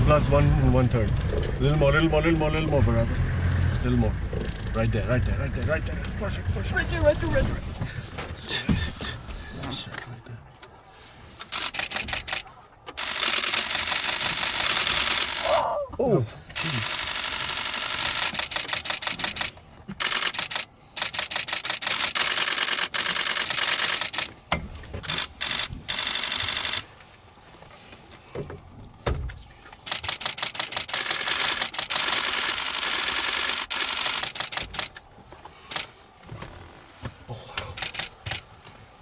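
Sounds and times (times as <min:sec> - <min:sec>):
camera shutters in rapid bursts: 0:11.5 - 0:12.4, 0:13.0 - 0:15.5, 0:16.6 - 0:24.4, 0:25.1 - 0:26.9, 0:29.8 - 0:35.0, 0:37.7 - 0:38.4.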